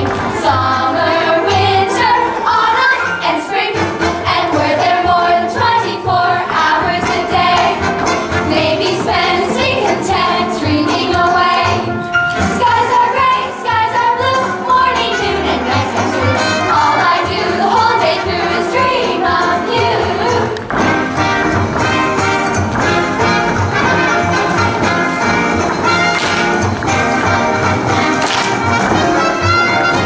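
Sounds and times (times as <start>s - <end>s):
girls singing in chorus: 0.0s - 20.6s
instrumental accompaniment: 0.0s - 30.0s.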